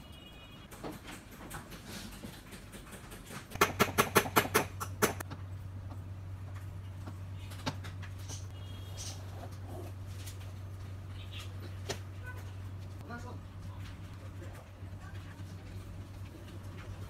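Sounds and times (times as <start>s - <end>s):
steady low hum: 3.6s - 17.0s.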